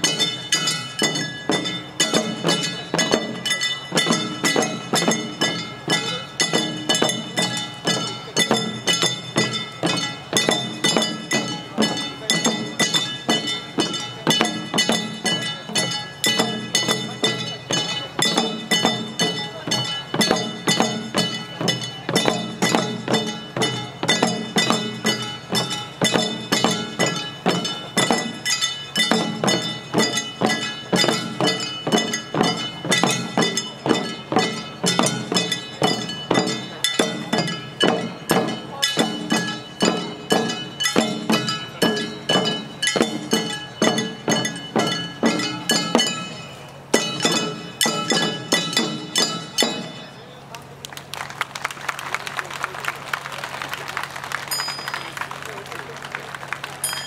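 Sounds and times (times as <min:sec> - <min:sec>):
hand gongs struck: 0:00.0 - 0:50.2
drum beats: 0:00.0 - 0:50.8, 0:52.0 - 0:57.0.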